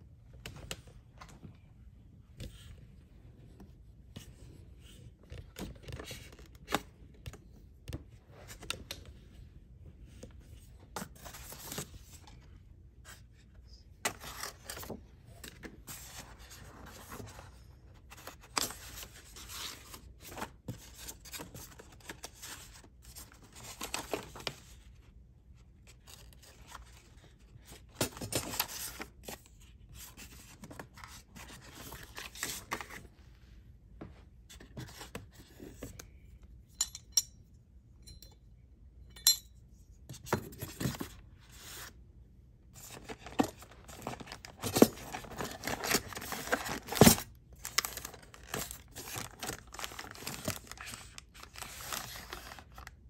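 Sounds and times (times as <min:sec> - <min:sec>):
paper rustling: 0:42.8 - 0:53.0.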